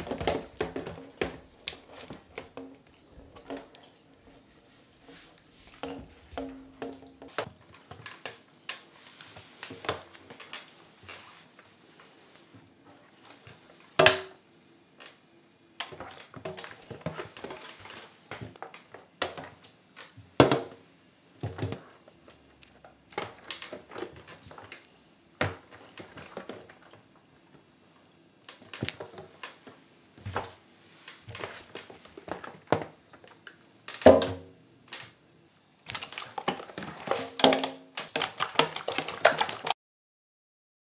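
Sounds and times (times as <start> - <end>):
slime squelching and splashing: 35.8 - 39.8.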